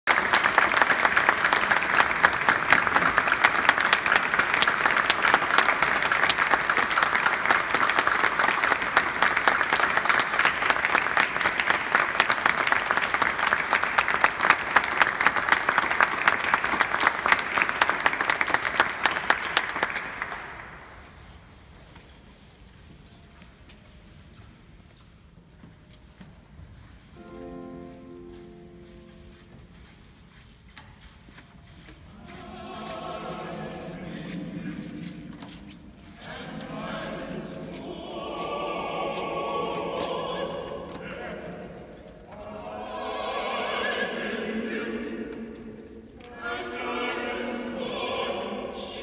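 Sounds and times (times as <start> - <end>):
audience applauding: 0.0 - 20.9.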